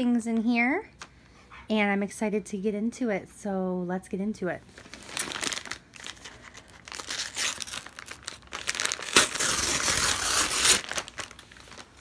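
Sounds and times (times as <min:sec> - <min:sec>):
paper mailer crinkling: 0:04.8 - 0:12.0
paper strip ripping: 0:06.9 - 0:11.8.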